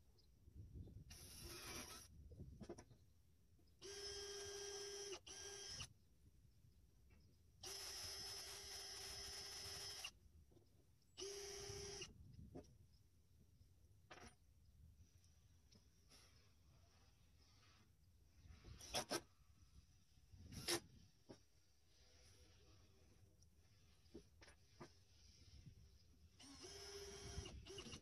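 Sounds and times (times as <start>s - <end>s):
cordless drill whining: 1.1s - 2.1s, 3.8s - 5.9s, 7.6s - 10.2s, 11.2s - 12.2s, 20.4s - 21.0s, 26.4s - 28.0s.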